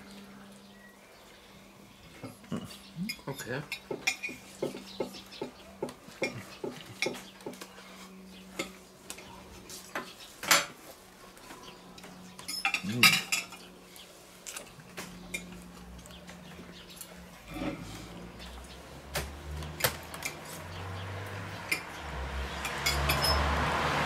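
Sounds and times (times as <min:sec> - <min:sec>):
cutlery clinking on plates: 0:03.1 - 0:04.8, 0:12.4 - 0:13.7, 0:22.6 - 0:23.5.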